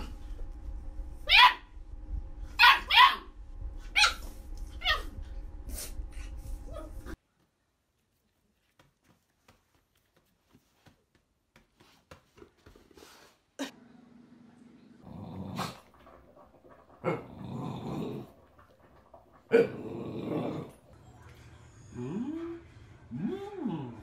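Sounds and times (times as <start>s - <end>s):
dog growling: 15.0s - 20.9s.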